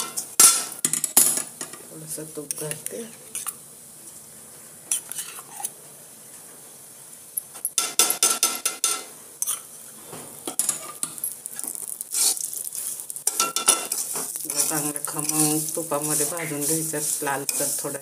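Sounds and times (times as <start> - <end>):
spoon scraping metal pan: 4.9 - 5.7, 10.5 - 18.0.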